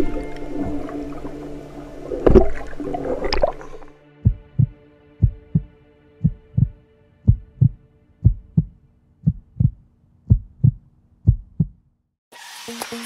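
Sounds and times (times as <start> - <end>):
underwater rushing and bubbling: 0.0 - 5.7
steady low drone: 0.0 - 9.8
heartbeat thumps: 4.2 - 11.8.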